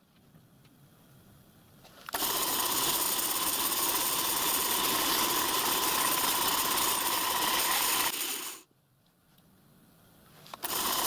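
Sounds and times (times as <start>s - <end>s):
milling machine running: 2.1s - 8.6s, 10.6s - 11.0s.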